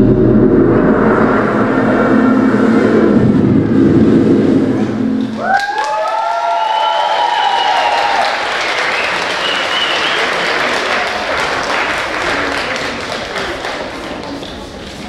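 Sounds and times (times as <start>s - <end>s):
audience applauding: 5.4s - 14.9s.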